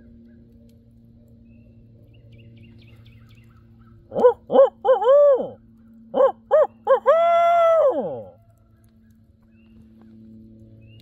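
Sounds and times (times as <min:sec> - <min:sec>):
man hooting like an owl: 0:04.2 - 0:05.6, 0:06.2 - 0:08.4.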